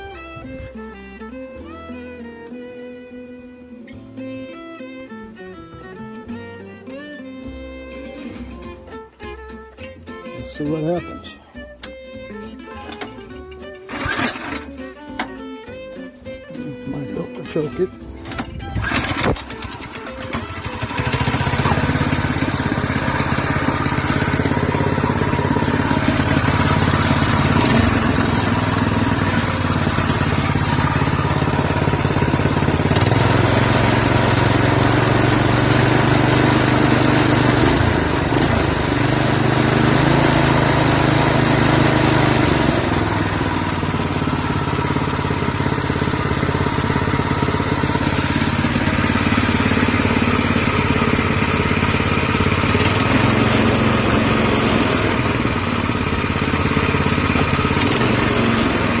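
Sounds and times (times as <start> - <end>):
small engine running steadily: 12.8 - 15.5, 16.7 - 59.0.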